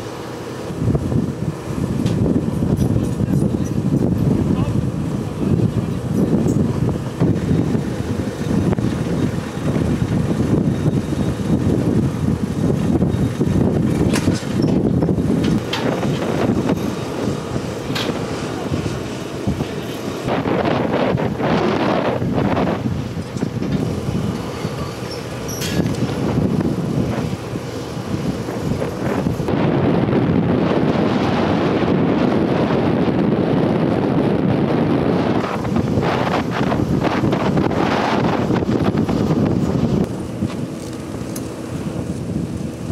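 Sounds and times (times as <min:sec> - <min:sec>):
wind buffeting microphone: 0:00.0 - 0:42.9
baggage tug towing carts: 0:02.0 - 0:29.6.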